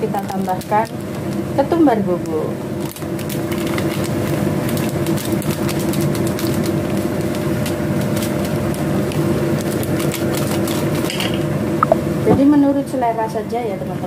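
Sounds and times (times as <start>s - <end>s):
soup boiling and bubbling: 0.7s - 1.6s, 2.5s - 12.2s.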